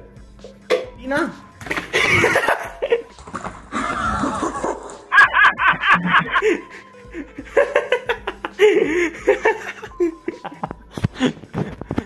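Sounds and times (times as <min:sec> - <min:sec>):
people speaking: 0:00.9 - 0:01.4
people laughing: 0:01.9 - 0:12.0.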